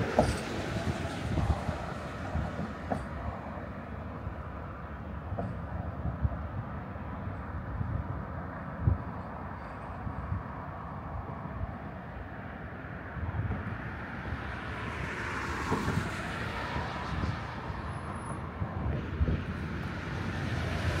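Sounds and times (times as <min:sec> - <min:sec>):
wind on microphone: 0:00.0 - 0:03.4, 0:05.3 - 0:09.3, 0:15.7 - 0:21.0
city street traffic: 0:00.0 - 0:21.0
vehicle passing: 0:20.2 - 0:21.0.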